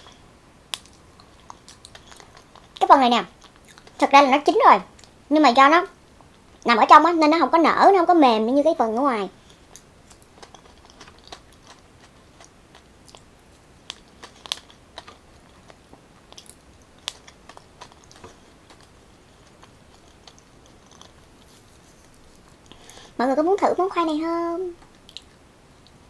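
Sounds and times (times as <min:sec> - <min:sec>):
wet chewing smacks: 0:00.8 - 0:04.0, 0:09.6 - 0:23.0, 0:24.9 - 0:25.4.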